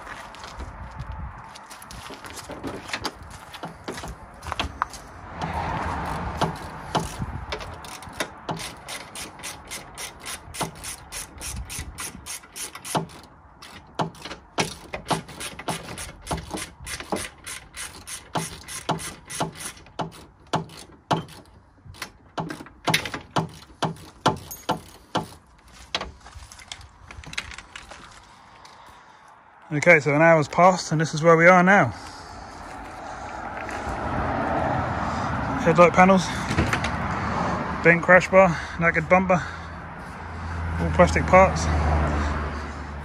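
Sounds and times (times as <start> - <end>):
socket ratchet clicking: 6.4 - 24.9.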